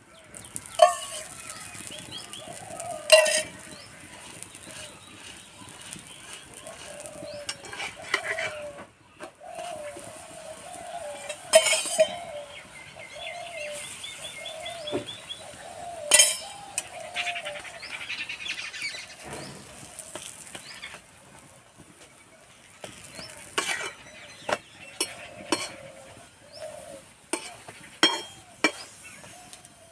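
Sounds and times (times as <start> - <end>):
birds calling: 0.0 - 29.9
flatbread frying: 0.0 - 29.9
metal spatula clinking on iron pan: 0.8 - 1.4, 3.1 - 3.7, 11.3 - 12.3, 16.1 - 16.9, 25.0 - 25.8, 27.3 - 28.9.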